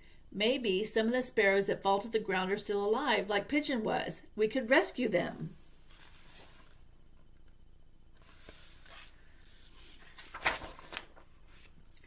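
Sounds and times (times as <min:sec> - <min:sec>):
book pages turning: 0:05.8 - 0:06.8, 0:08.2 - 0:12.0
page flip: 0:05.8 - 0:06.8, 0:08.2 - 0:12.0.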